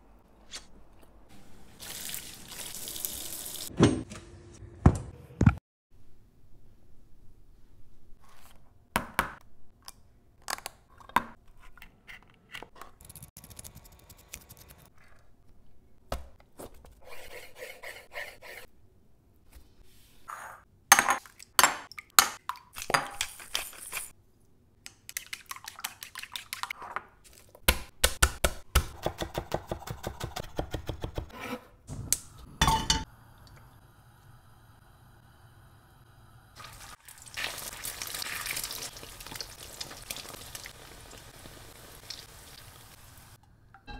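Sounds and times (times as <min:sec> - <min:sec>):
dishes and utensils clinking: 0:32.6 - 0:33.1.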